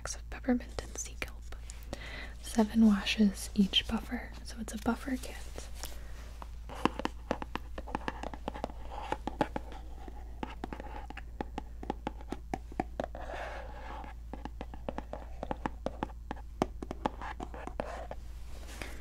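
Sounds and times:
scratchy rubs: 0:12.9 - 0:18.7
hands tapping on box: 0:14.3 - 0:17.8.

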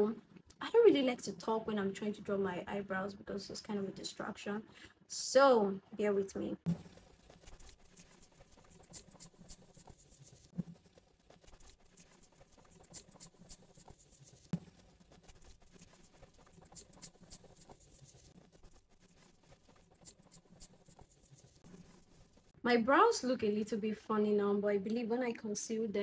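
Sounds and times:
pencil scratching on eyebrow: 0:06.7 - 0:22.6.

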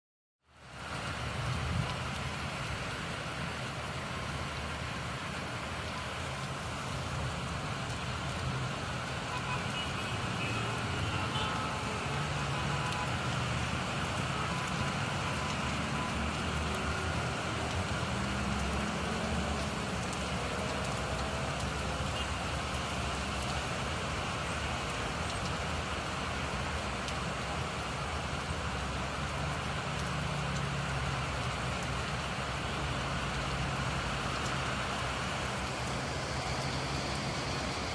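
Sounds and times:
tyres on wet roads: 0:00.4 - 0:37.9
rain hiss: 0:00.5 - 0:37.9.

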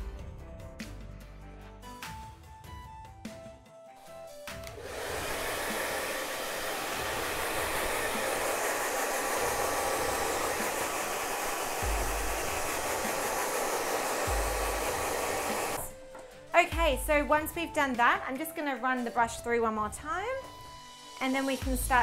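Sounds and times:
hair dryer blowing: 0:04.6 - 0:16.2.

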